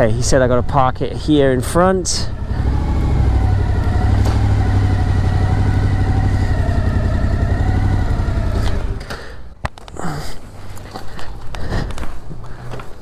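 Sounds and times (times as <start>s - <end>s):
motorcycle engine running at low revs: 0.0s - 9.1s.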